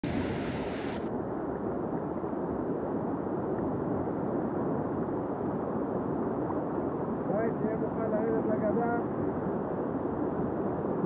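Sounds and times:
river water rushing against raft: 0.0s - 1.1s.

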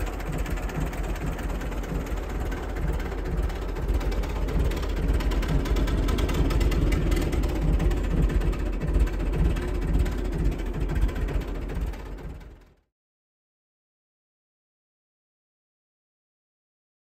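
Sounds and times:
tractor engine idling: 0.0s - 12.8s.

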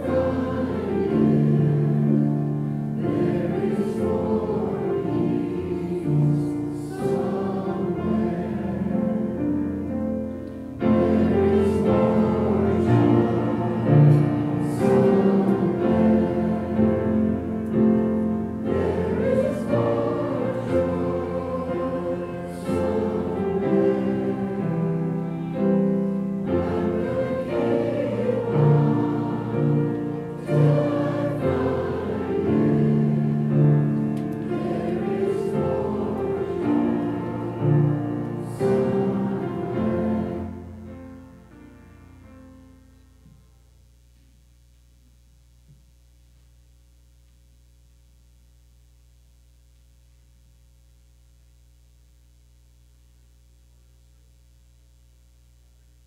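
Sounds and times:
congregation singing a hymn: 0.0s - 41.6s
piano accompaniment: 0.0s - 42.9s.

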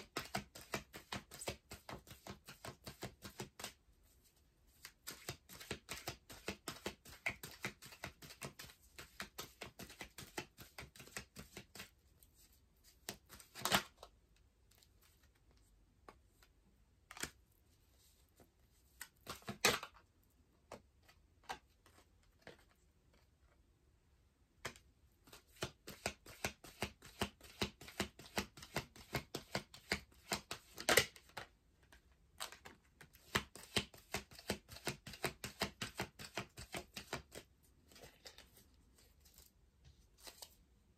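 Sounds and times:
cards being shuffled: 0.0s - 3.8s, 4.7s - 14.1s, 18.4s - 20.0s, 24.6s - 40.6s.

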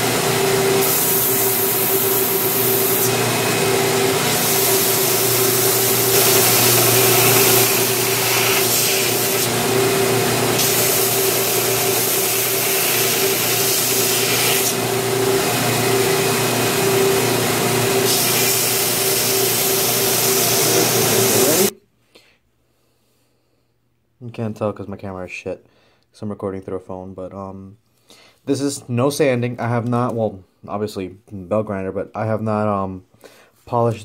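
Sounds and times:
belt grinder motor hum: 0.0s - 21.7s
belt grinding wood and steel: 0.3s - 17.2s.

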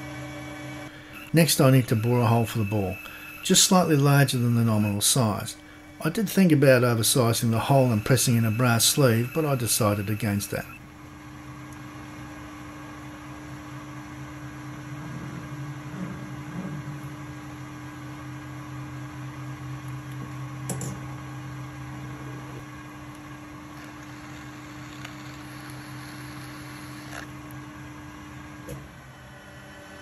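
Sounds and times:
metal lathe humming: 0.7s - 10.9s, 23.8s - 27.3s
drill boring into steel: 1.1s - 10.8s, 23.8s - 27.3s.

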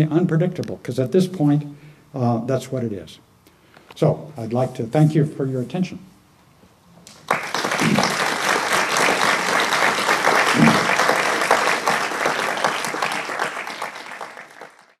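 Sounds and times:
audience applauding: 7.1s - 15.0s.

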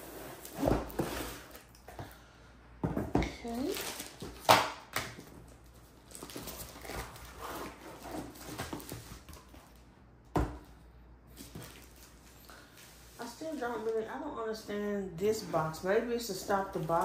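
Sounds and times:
rustling packaging: 5.2s - 9.8s, 15.7s - 17.0s.

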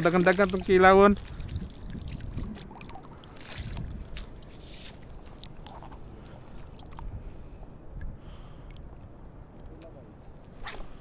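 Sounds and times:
water sloshing and splashing: 0.0s - 7.8s.

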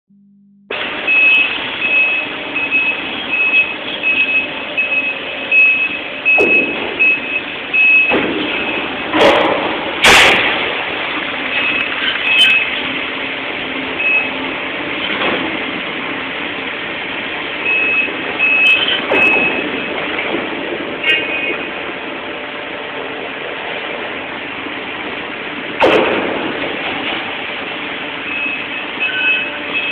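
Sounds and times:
reversing alarm beeping: 0.1s - 8.9s, 14.0s - 14.4s, 17.6s - 20.0s, 28.2s - 29.9s
heavy machinery noise: 0.7s - 29.9s
metal crashes and bangs: 8.1s - 12.7s, 25.8s - 27.6s.

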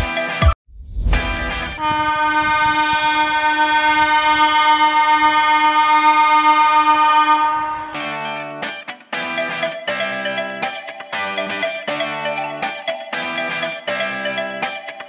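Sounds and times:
keyboard chord with pulsing bass: 9.3s - 15.0s.

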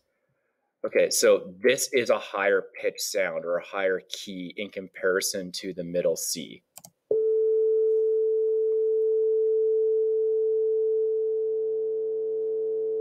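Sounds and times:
sine tone from speakers: 7.1s - 13.0s.

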